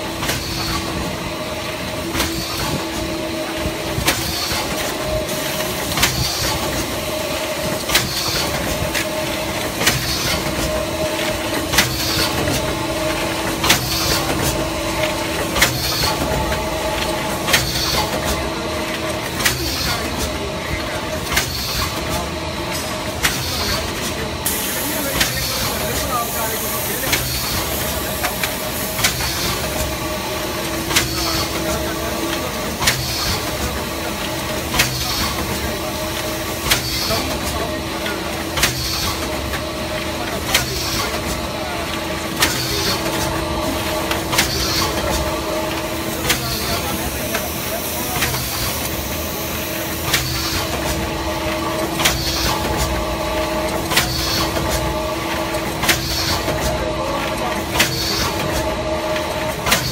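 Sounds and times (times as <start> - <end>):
mechanical hum and hiss: 0.0 - 59.9
machine sharp clack: 21.2 - 59.9.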